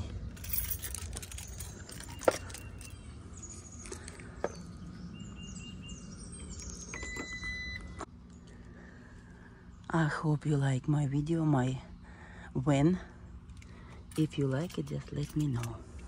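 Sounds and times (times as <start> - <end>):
birds chirping: 0.0 - 9.9.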